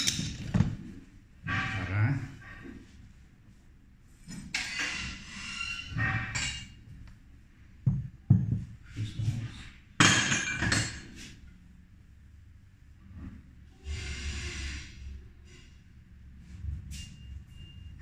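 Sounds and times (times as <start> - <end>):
tools rustling and scraping: 0.0 - 1.8.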